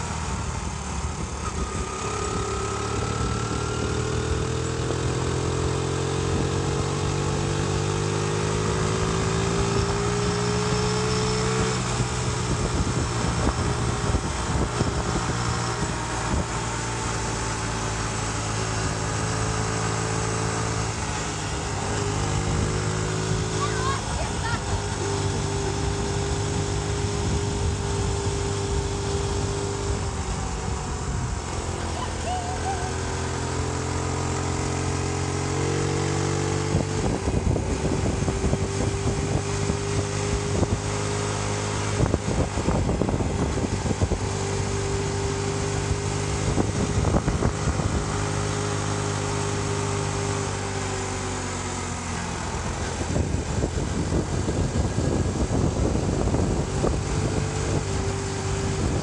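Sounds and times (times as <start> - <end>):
vehicle engine cruising: 0.0 - 59.0
wind buffeting microphone: 11.4 - 16.5, 36.6 - 41.0, 41.8 - 44.8, 45.5 - 48.4, 52.4 - 59.0.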